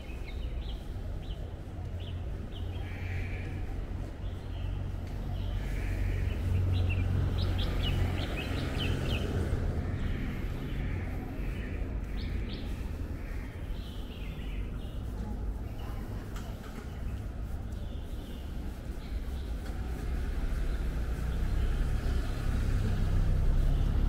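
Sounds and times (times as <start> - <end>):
birds chirping: 0.0 - 24.0
low city rumble: 0.0 - 24.0.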